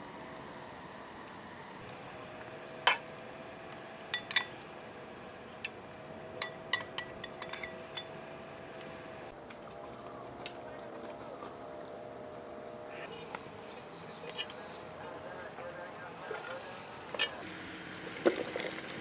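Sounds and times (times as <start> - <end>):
metal utensils and dishes clinking: 4.1 - 4.5, 6.4 - 8.2.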